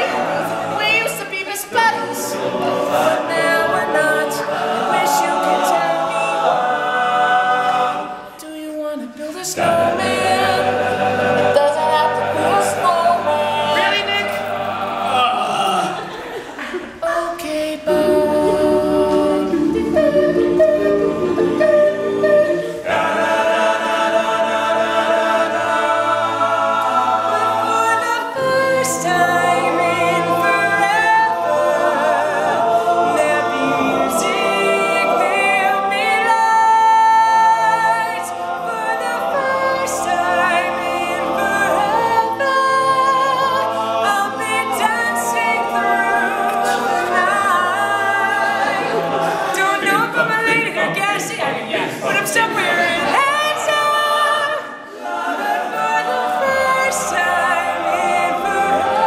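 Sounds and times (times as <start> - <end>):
male a cappella group singing: 0.0 - 59.0.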